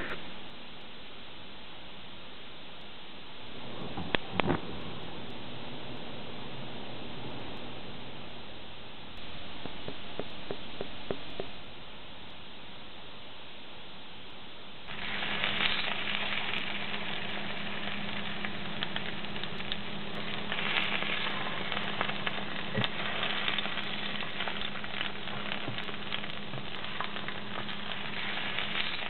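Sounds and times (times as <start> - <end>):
plantain frying in hot oil: 14.9 - 29.0.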